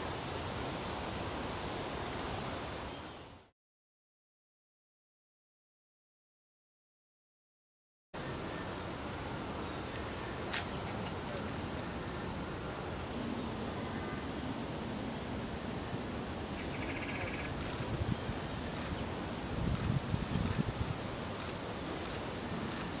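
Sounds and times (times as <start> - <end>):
steady hiss: 0.0 - 3.5, 8.2 - 23.0.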